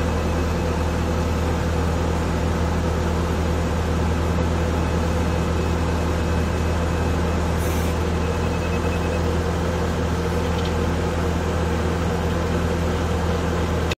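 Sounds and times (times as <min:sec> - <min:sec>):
loader diesel engine running: 0:00.0 - 0:14.0.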